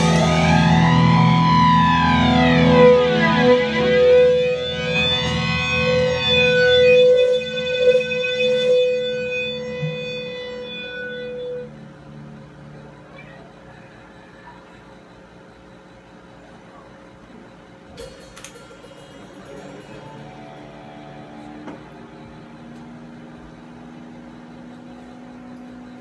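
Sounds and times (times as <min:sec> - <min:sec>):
electric guitar ringing out: 0:00.0 - 0:13.6, 0:17.9 - 0:26.0
low amplifier hum: 0:00.0 - 0:26.0
pulsing low drone: 0:00.0 - 0:26.0.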